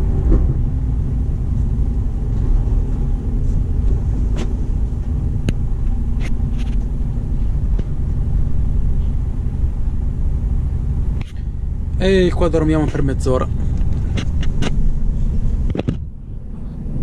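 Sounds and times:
road noise: 0.0 - 17.0
truck engine rumble: 0.0 - 17.0
clicks and knocks in cab: 15.6 - 16.1.

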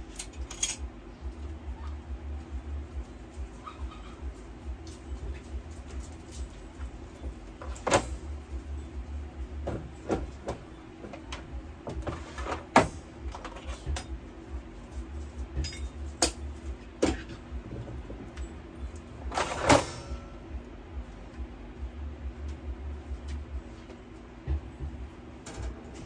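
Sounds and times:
steady low hum: 0.0 - 26.0
metal parts clinking and knocking: 0.1 - 0.9, 15.6 - 16.4.

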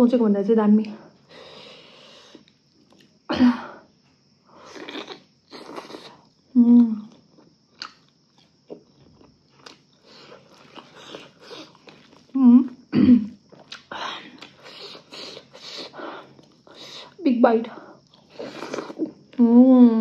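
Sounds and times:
person chewing food: 2.3 - 3.2, 4.7 - 6.5, 7.1 - 12.4, 13.3 - 17.2, 18.0 - 19.4.

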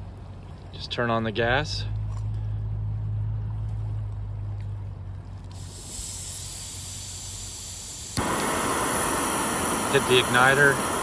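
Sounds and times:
low steady rumble: 0.0 - 11.0
gas hissing from stove: 5.5 - 11.0.

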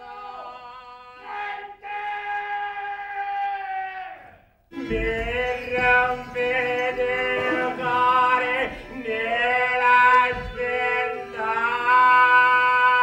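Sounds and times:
men singing wailing chant: 4.8 - 13.0.

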